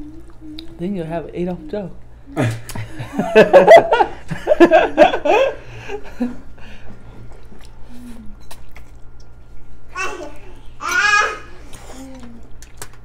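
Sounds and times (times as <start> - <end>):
people chewing and eating noodles: 0.0 - 3.2, 5.6 - 13.0
women laughing: 2.4 - 6.4.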